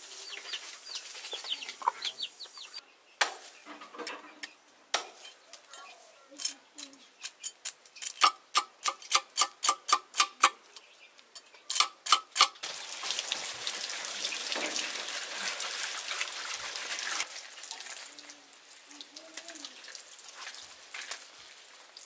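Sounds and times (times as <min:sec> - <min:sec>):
water pouring and splashing: 0:12.6 - 0:22.0.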